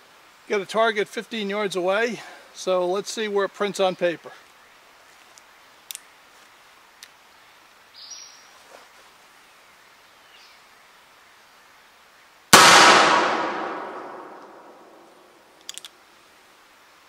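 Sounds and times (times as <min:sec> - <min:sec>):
revolver shot with echo: 0:12.6 - 0:15.1.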